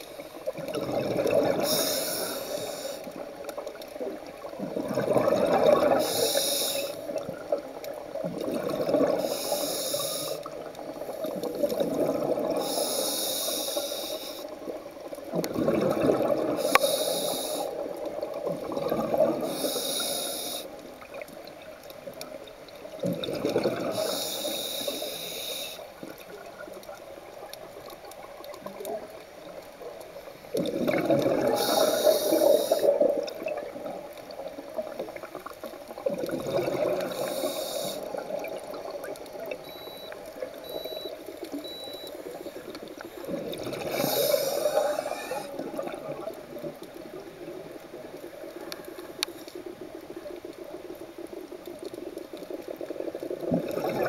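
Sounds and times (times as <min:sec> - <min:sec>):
exhaled bubbles rushing: 0:00.5 - 0:01.9, 0:02.6 - 0:06.2, 0:07.0 - 0:09.2, 0:10.4 - 0:12.7, 0:14.7 - 0:16.8, 0:17.7 - 0:19.6, 0:22.9 - 0:24.2, 0:30.4 - 0:40.8, 0:42.9 - 0:48.8, 0:49.7 - 0:54.0
regulator inhale hiss: 0:01.6 - 0:03.2, 0:05.9 - 0:07.2, 0:09.1 - 0:11.5, 0:12.6 - 0:14.6, 0:16.6 - 0:17.9, 0:19.4 - 0:20.8, 0:23.9 - 0:26.0, 0:31.5 - 0:33.0, 0:37.0 - 0:38.3, 0:43.8 - 0:45.6.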